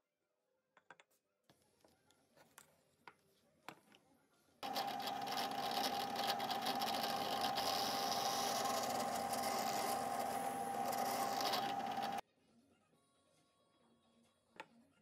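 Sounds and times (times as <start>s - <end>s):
drill bit boring into wood: 4.6s - 12.2s
drill press motor whining: 4.6s - 12.2s.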